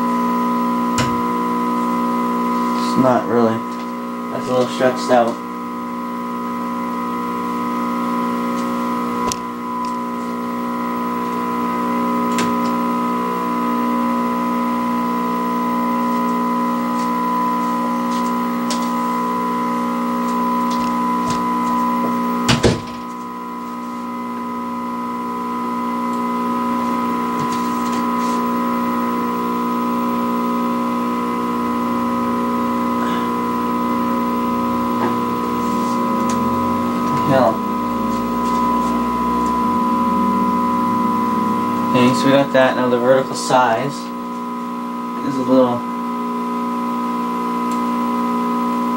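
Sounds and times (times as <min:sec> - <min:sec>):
tv speaker hum and buzz: 0:00.0 - 0:48.9.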